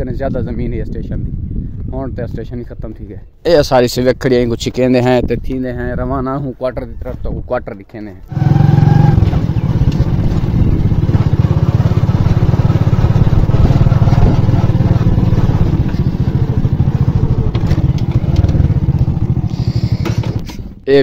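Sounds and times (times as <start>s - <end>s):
small motorcycle engine running: 8.3s - 20.8s.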